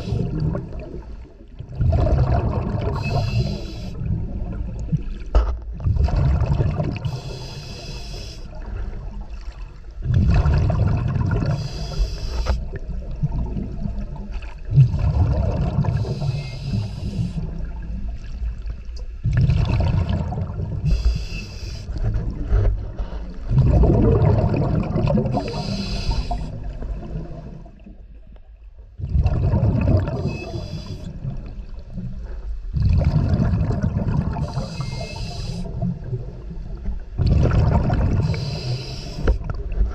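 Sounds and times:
rumbling exhaust bubbles: 0:00.0 - 0:05.1, 0:05.7 - 0:07.4, 0:10.0 - 0:11.8, 0:12.7 - 0:18.0, 0:19.2 - 0:21.2, 0:21.9 - 0:27.7, 0:29.0 - 0:31.6, 0:32.7 - 0:38.6
regulator inhale hiss: 0:02.9 - 0:04.1, 0:07.0 - 0:08.5, 0:11.4 - 0:12.8, 0:15.9 - 0:17.5, 0:20.8 - 0:22.0, 0:25.3 - 0:26.6, 0:30.3 - 0:31.3, 0:34.4 - 0:35.8, 0:38.2 - 0:39.4.

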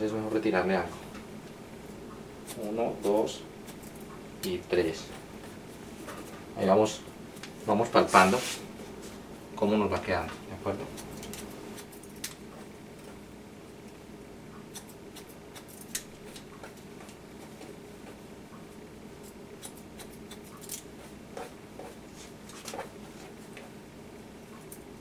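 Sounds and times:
low room hum: 0:00.0 - 0:25.0
scissors snipping hair: 0:10.9 - 0:13.2, 0:14.7 - 0:17.2, 0:19.2 - 0:20.9.

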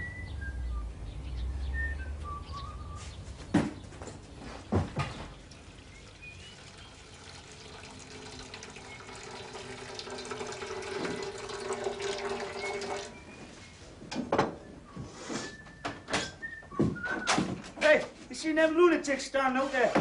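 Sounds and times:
water running from a tap: 0:05.4 - 0:13.2.

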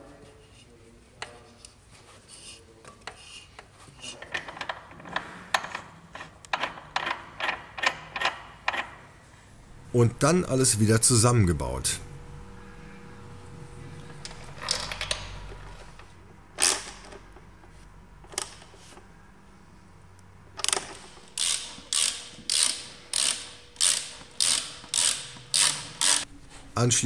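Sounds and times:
ratchet wrench clicking: 0:20.6 - 0:26.3.

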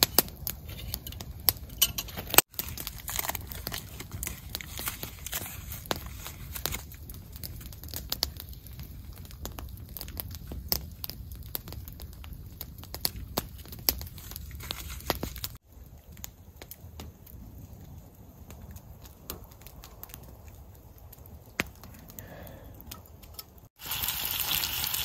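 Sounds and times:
campfire crackling and popping: 0:00.0 - 0:25.0.

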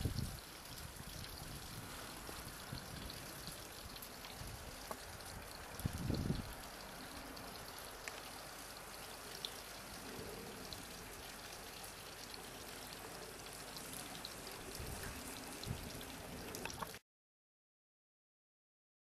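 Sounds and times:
outdoor background hiss: 0:00.0 - 0:17.0
faint ticks: 0:06.3 - 0:10.8.

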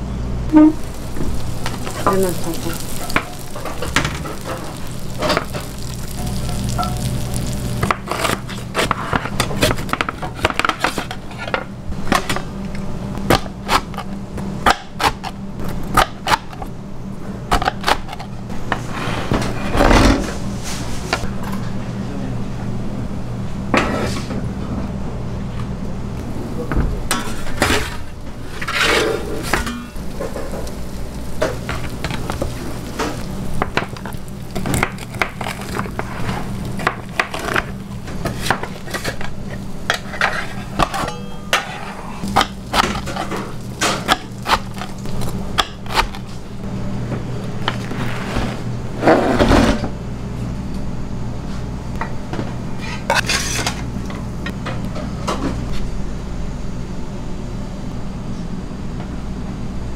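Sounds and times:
low machine hum: 0:00.0 - 0:59.9
metal pans clattering and scraping: 0:27.1 - 0:30.7, 0:35.6 - 0:44.9, 0:52.8 - 0:53.9.

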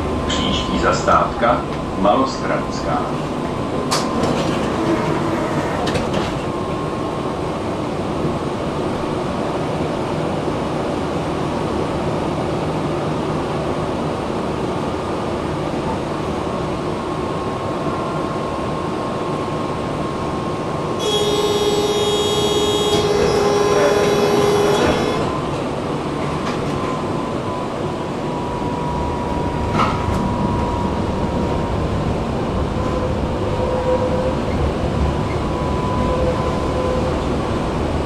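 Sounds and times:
tram wheels rumbling on rails: 0:00.0 - 0:38.0
wheels squealing on rails: 0:21.0 - 0:25.8, 0:32.7 - 0:37.6.

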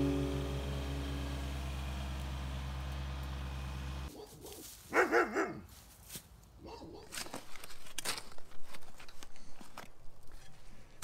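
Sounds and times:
tractor engine hum: 0:00.0 - 0:04.2
dog barking: 0:04.1 - 0:05.6, 0:06.6 - 0:07.2.

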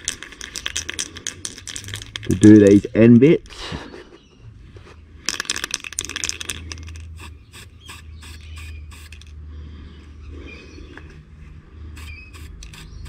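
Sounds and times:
spray can ball rattling: 0:00.0 - 0:02.9, 0:05.2 - 0:09.4, 0:12.0 - 0:13.0
spray paint hissing: 0:06.1 - 0:09.3, 0:11.9 - 0:13.0.

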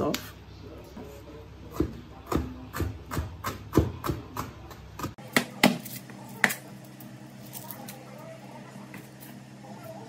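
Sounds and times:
knife chopping on plastic board: 0:01.7 - 0:06.6.

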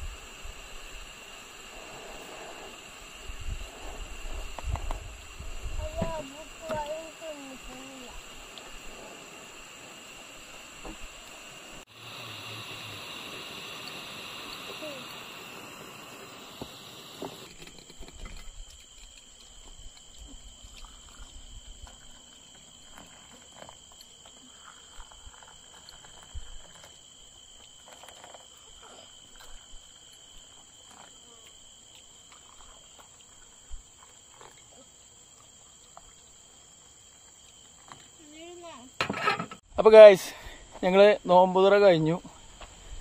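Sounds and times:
camping stove hissing: 0:00.0 - 0:43.0
crickets chirping: 0:00.0 - 0:43.0
tea pouring into cups: 0:32.0 - 0:34.7.

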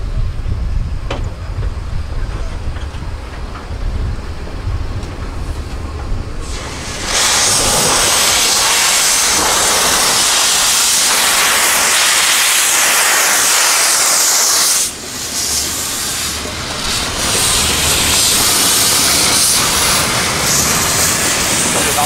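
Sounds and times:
steam locomotive hissing steam: 0:06.3 - 0:22.0.

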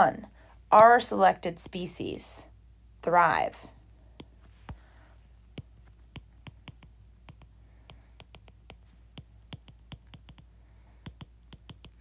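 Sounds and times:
stylus tapping on glass screen: 0:05.6 - 0:12.0.

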